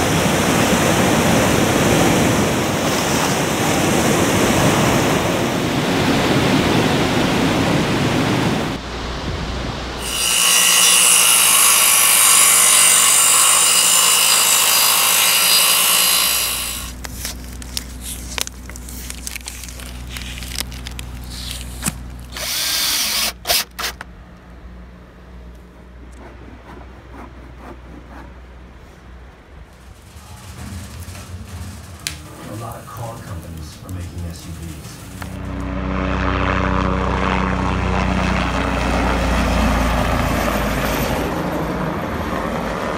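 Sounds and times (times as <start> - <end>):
power tool bursts: 10.0 - 17.0, 21.7 - 24.0
electric miter saw cutting wood: 10.0 - 17.1, 21.3 - 24.0.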